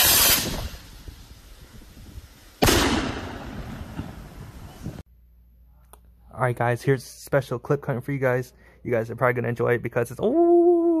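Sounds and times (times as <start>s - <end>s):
firework rocket bang: 0.0s - 5.0s.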